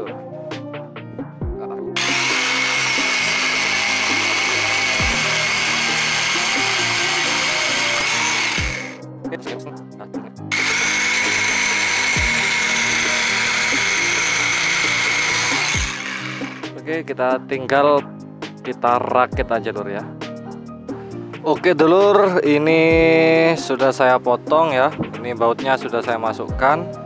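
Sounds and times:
angle grinder cutting steel rod: 0:02.0 - 0:09.0, 0:10.5 - 0:16.8.

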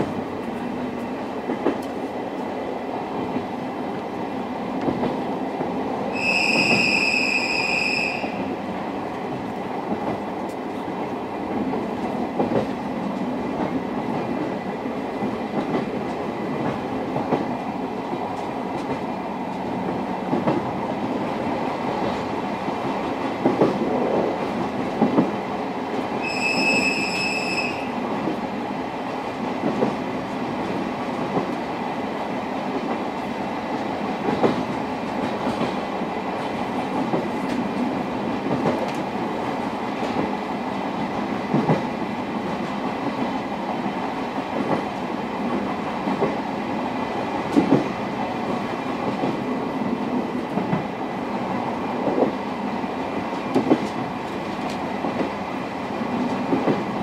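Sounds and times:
train wheels rumbling on rails: 0:00.0 - 0:57.0
high whistle tones: 0:06.1 - 0:08.4, 0:26.2 - 0:27.9.

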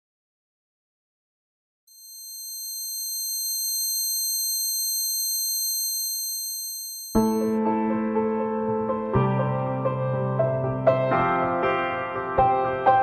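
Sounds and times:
high-pitched electronic ringing: 0:01.9 - 0:07.6
piano: 0:07.2 - 0:13.0.

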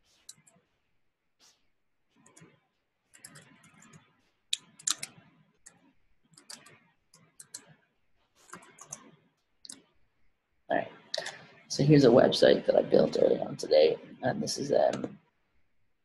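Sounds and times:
computer keyboard typing: 0:00.2 - 0:00.6, 0:03.1 - 0:04.0, 0:04.6 - 0:07.8, 0:08.4 - 0:09.1.

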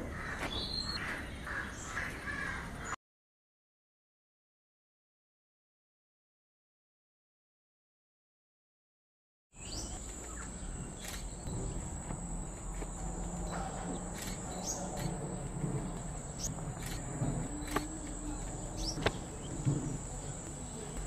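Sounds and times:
bird chirps: 0:00.4 - 0:02.0, 0:09.6 - 0:21.0
insects droning: 0:09.6 - 0:21.0.

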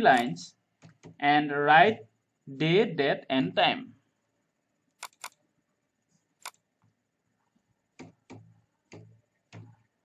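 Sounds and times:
keyboard key clicks: 0:05.0 - 0:05.4.

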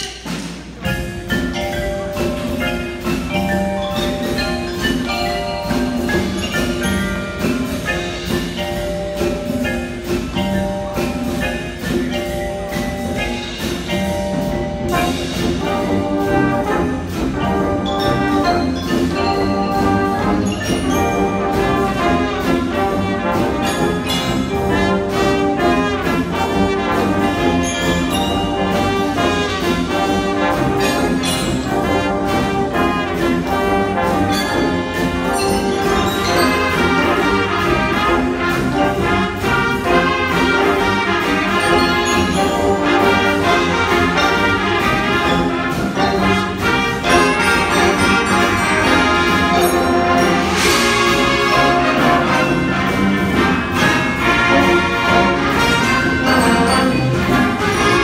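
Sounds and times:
mallet percussion: 0:00.0 - 0:58.0
marching band playing: 0:00.0 - 0:58.0
brass and woodwind chords: 0:14.9 - 0:58.0.

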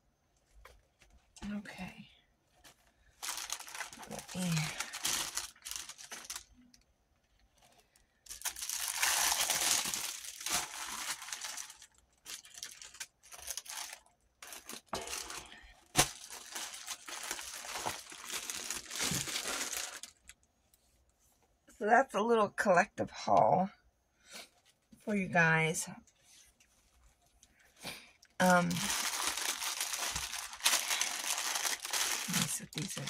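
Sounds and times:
plastic sticker sheets crinkling: 0:02.7 - 0:06.7, 0:07.7 - 0:20.4, 0:28.4 - 0:33.0.

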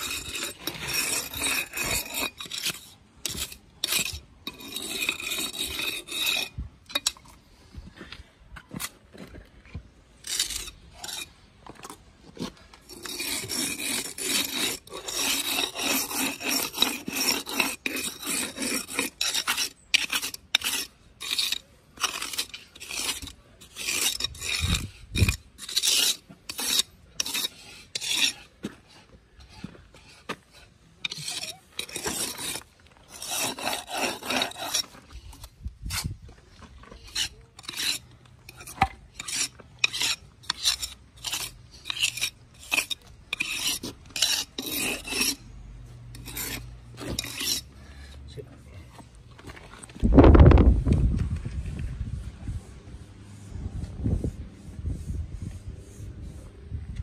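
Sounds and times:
trowel scraping mortar joints: 0:00.0 - 0:07.5, 0:08.6 - 0:48.0.

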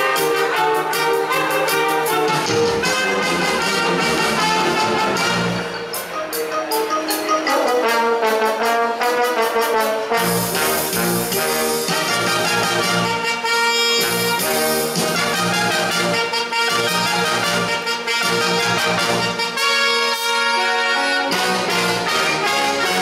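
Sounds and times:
steady drum beat: 0:00.0 - 0:06.1, 0:09.6 - 0:19.6
brass band playing: 0:00.0 - 0:23.0.

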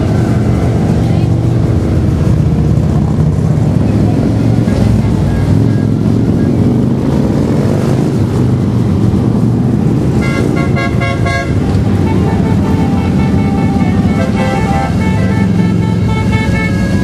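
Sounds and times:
held horn tone: 0:10.1 - 0:17.0.

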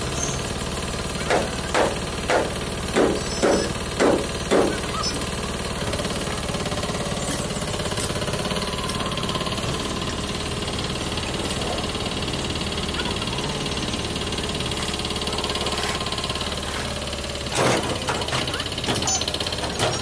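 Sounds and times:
tractor diesel engine running: 0:00.0 - 0:20.0
sharp bangs: 0:01.3 - 0:05.0.

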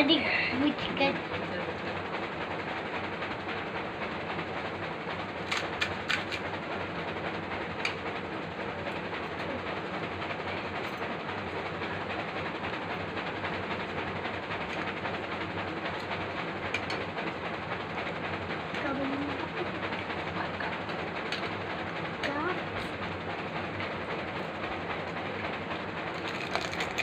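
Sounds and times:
crisp cracks of food breaking: 0:26.2 - 0:27.0.

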